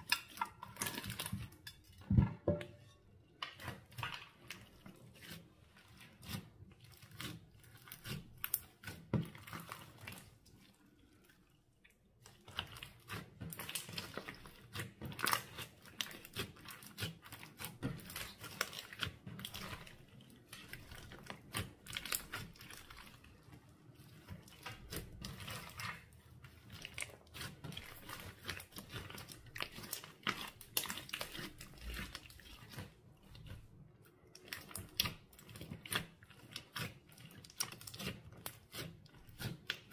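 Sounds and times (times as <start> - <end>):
slime squished by hand: 24.0 - 39.9.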